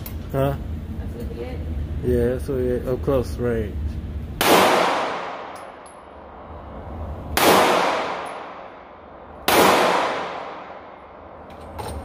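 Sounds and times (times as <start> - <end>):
gunshots with echo: 7.4 - 8.8, 9.5 - 10.9.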